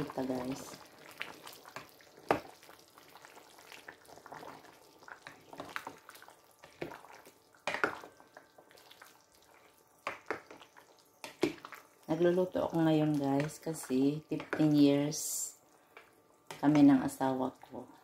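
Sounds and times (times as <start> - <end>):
spoon stirring thick stew: 13.0 - 14.9.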